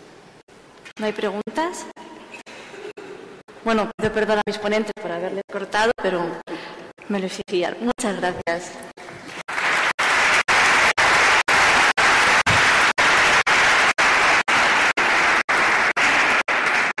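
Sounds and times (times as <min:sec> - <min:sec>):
audience applauding: 0:09.2 - 0:17.0.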